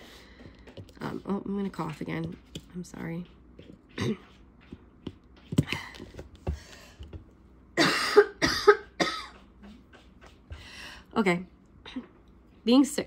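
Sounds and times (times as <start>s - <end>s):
woman coughing: 4.0s - 4.3s, 7.8s - 9.4s.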